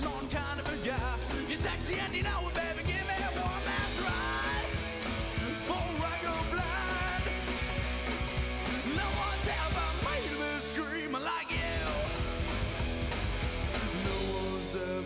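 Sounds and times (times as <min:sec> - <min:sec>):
rock song with singer and band: 0:00.0 - 0:15.0.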